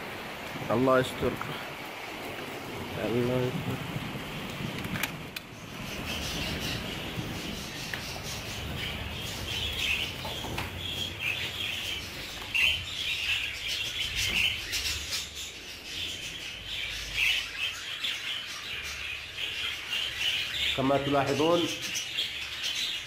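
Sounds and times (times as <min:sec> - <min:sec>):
budgerigars chattering: 0:05.7 - 0:23.0.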